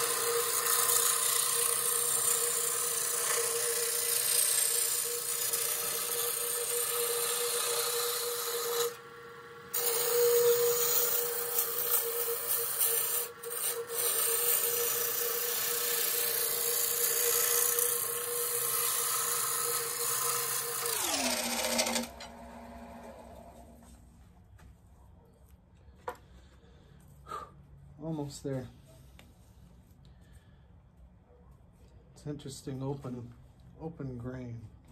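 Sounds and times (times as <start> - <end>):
wood lathe motor hum: 0.0 - 23.9.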